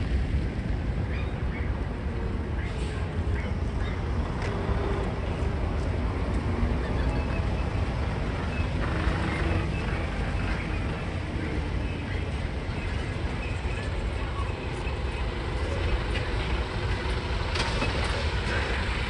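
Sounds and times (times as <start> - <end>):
diesel truck engine rumbling: 0.0 - 19.0.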